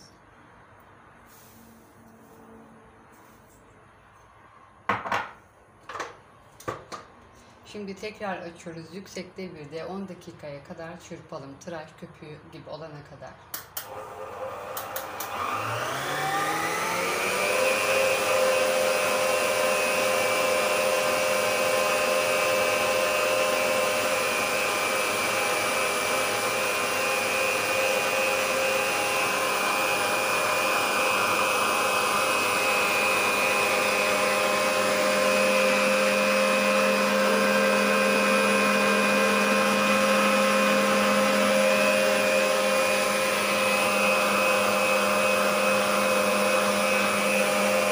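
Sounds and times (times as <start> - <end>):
stand mixer motor whining: 13.8 - 47.9.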